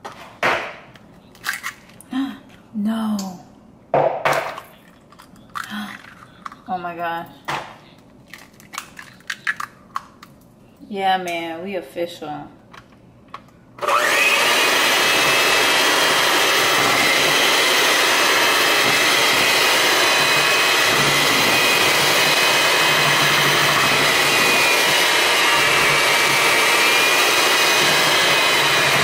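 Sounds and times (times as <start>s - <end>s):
electric mixer motor whirring: 13.8s - 29.0s.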